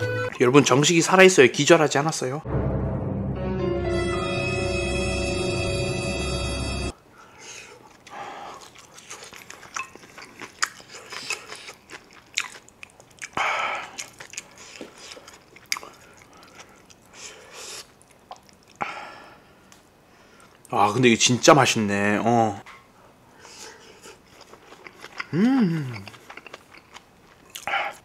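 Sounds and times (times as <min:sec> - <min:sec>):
man chewing with wet mouth clicks: 0:07.7 - 0:18.8, 0:23.8 - 0:28.0
hissy breaths or sniffs: 0:17.1 - 0:17.9, 0:23.3 - 0:24.2.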